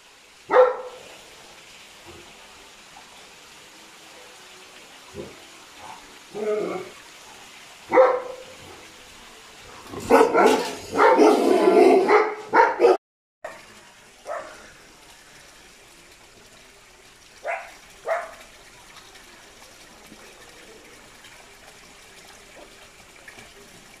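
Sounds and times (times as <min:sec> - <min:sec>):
dog barking: 0:00.5 - 0:01.0, 0:07.9 - 0:08.6, 0:10.0 - 0:13.6, 0:14.2 - 0:14.6, 0:17.4 - 0:18.4.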